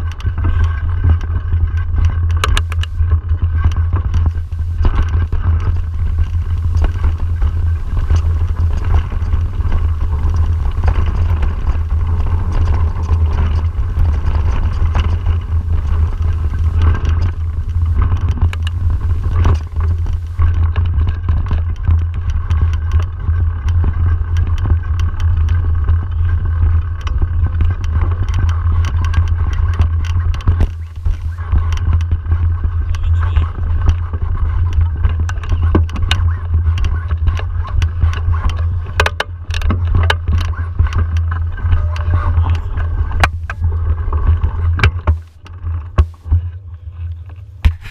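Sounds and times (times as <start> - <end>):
wind buffeting microphone: 0.0 - 46.4
bike rattling over bumps: 0.0 - 46.7, 47.4 - 47.9
tyres on dirt: 0.0 - 47.9.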